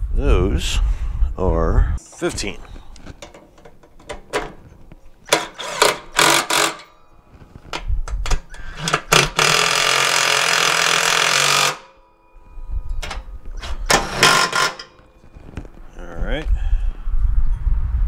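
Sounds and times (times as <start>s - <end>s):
metal parts clanking: 2.1s - 11.9s, 12.9s - 15.7s
power tool running: 5.3s - 6.9s, 8.5s - 11.9s, 13.9s - 14.9s.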